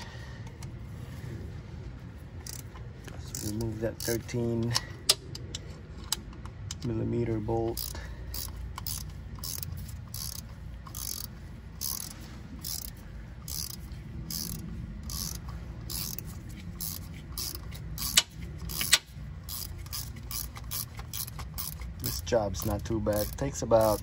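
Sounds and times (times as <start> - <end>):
ratcheting wrench clicking: 2.4 - 6.9, 7.6 - 24.0
sharp metallic clicks: 7.7 - 24.0.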